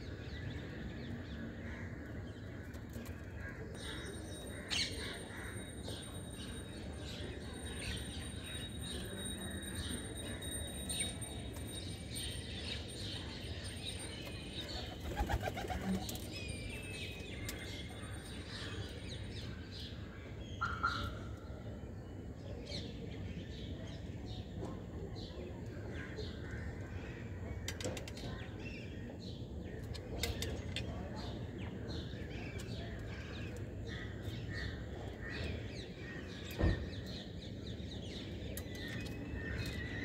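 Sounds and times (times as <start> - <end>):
sparrows chirping: 28.2 - 40.0.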